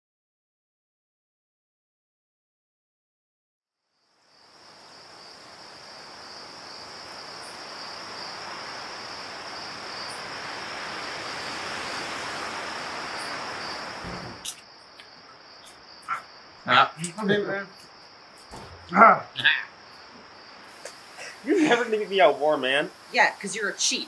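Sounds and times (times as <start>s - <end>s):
crickets chirping: 3.8s - 24.0s
soft even hiss: 20.0s - 24.0s.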